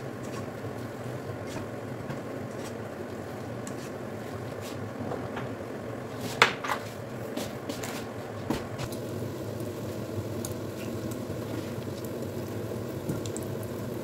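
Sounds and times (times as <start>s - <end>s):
steady hiss: 6.0s - 14.0s.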